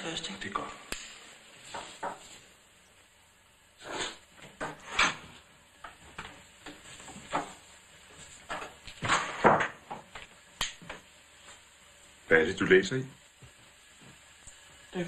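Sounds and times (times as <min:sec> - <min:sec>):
footsteps shuffling: 0:05.3 - 0:09.0, 0:13.3 - 0:14.9.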